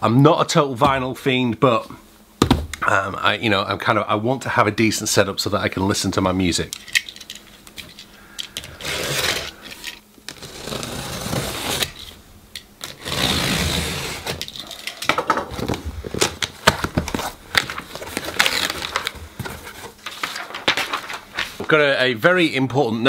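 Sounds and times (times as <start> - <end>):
box cutter slitting tape: 8.7 - 9.6, 10.3 - 12.2, 12.8 - 14.6
cardboard flaps rustling: 15.3 - 21.9.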